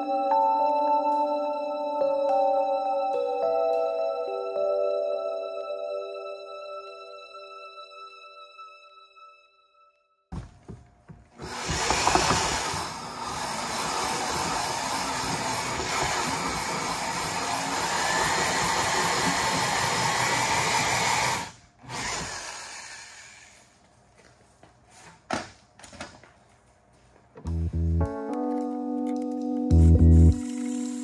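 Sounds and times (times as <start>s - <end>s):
knocks: 10.3s - 12.8s
corded drill running: 11.4s - 23.6s.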